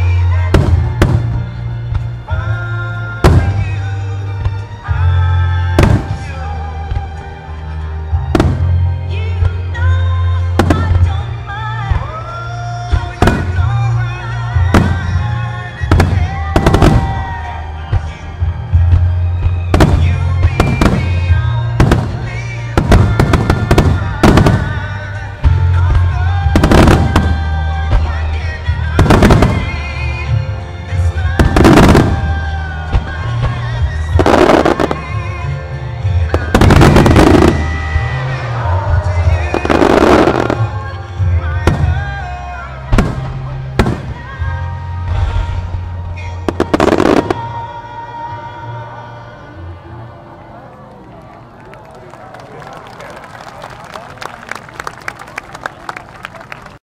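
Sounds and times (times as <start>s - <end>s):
fireworks bursting: 0.4s - 2.3s, 3.2s - 4.6s, 5.6s - 7.1s, 10.4s - 12.2s, 12.9s - 30.4s, 31.0s - 35.3s, 36.2s - 47.6s.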